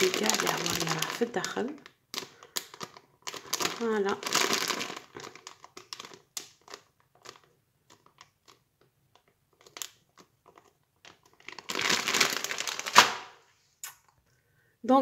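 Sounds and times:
frozen pieces shifting in bag: 0.0 - 7.4, 11.1 - 13.1
plastic bag crinkling: 0.0 - 13.5.

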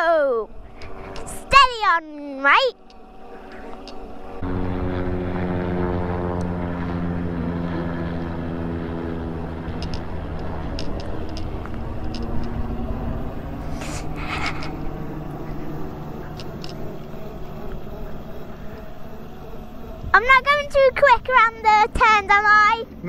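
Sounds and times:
propeller aircraft droning overhead: 0.0 - 23.0.

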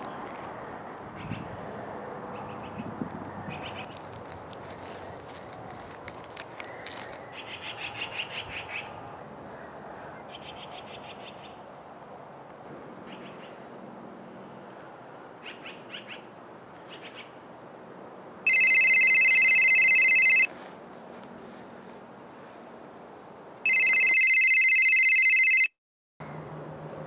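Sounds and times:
steady outdoor background: 0.0 - 27.0
phone ringtone trill: 18.5 - 20.5, 23.7 - 25.8.

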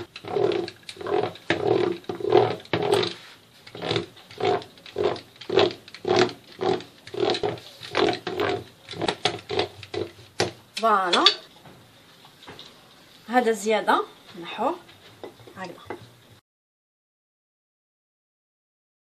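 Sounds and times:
pastry docker rasping on pastry: 0.0 - 10.6.

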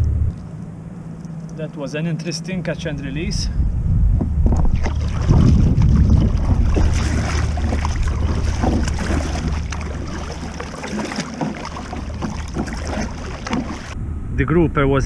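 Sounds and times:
wind rumble on microphone: 2.7 - 15.0
paddle strokes splashing: 4.5 - 14.0.

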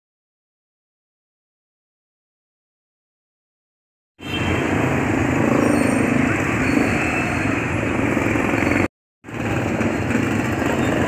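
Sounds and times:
street traffic noise: 4.2 - 11.0.

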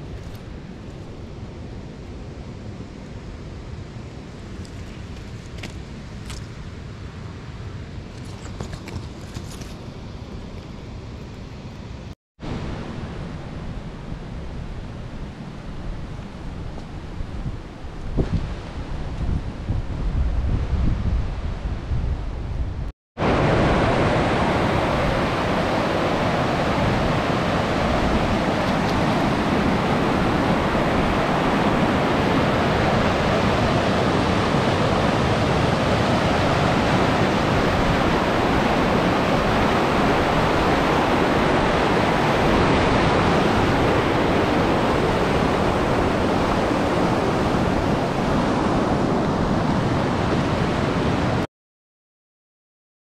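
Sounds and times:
river rushing over rocks: 23.2 - 51.4.

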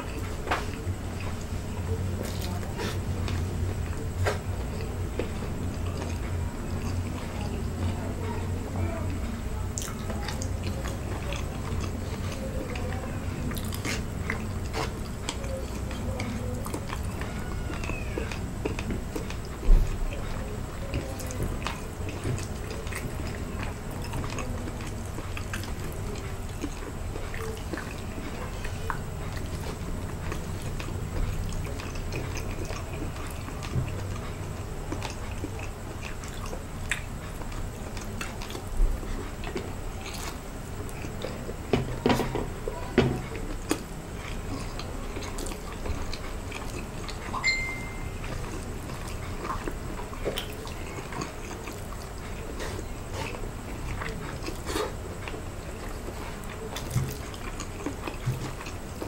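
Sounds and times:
wet chewing and squishing: 0.0 - 59.0.

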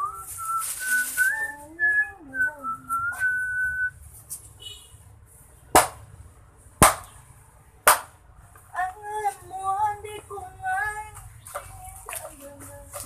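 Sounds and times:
person whistling a tune: 0.0 - 4.0.

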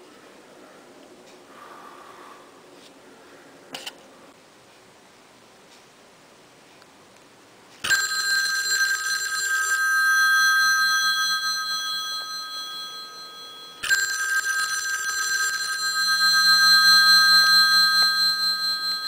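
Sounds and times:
telephone bell ringing: 7.8 - 19.0.

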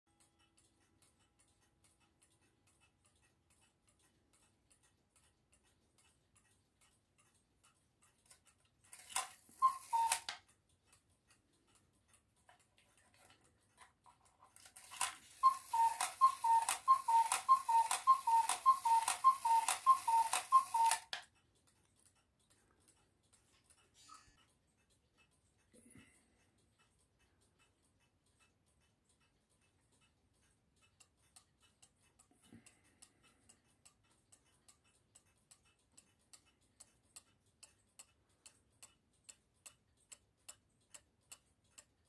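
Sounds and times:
clock ticking softly: 0.1 - 42.0
cuckoo clock calling: 8.4 - 10.6, 14.5 - 21.4.

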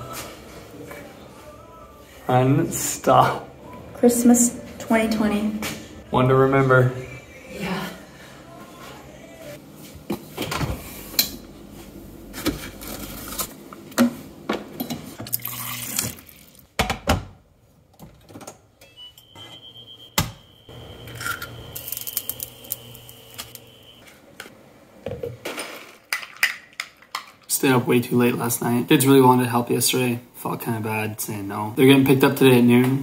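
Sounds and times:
liquid pouring: 15.3 - 16.7
items knocked and set down: 25.0 - 27.4.

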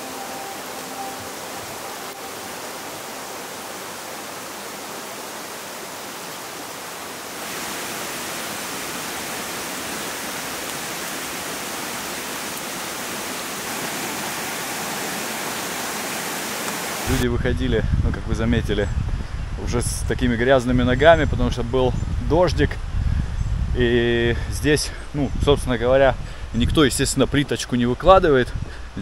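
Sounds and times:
stream rushing over stones: 0.0 - 17.2.

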